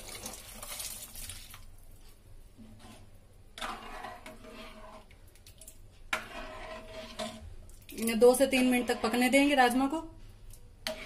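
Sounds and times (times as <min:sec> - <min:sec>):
beans and water splashing into pan: 0:00.0 - 0:01.7
ladle stirring beans in liquid: 0:00.0 - 0:11.0.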